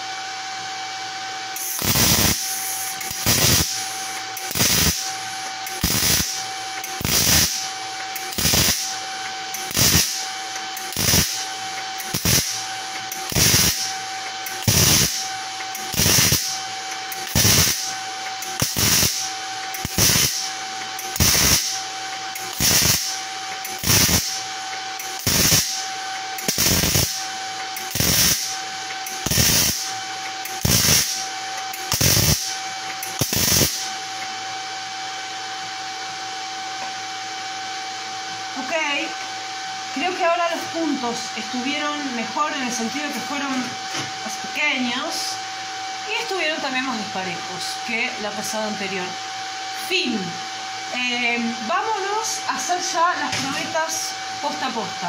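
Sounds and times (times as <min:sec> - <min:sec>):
steady whine: 0:00.0 - 0:55.0
welding arc crackling: 0:01.5 - 0:34.3.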